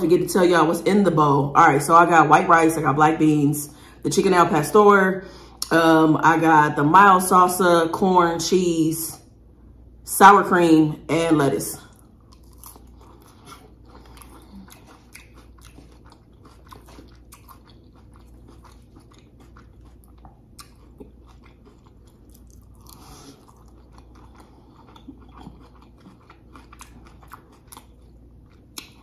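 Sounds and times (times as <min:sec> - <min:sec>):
close chewing and crunching: 0:11.8 - 0:29.0.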